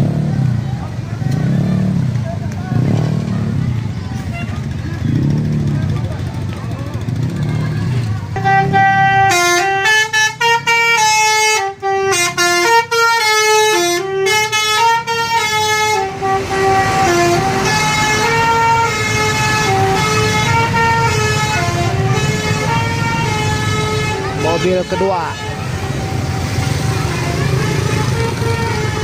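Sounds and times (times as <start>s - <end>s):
musical air horn tune: 8.4s - 29.0s
low engine rumble: 13.8s - 29.0s.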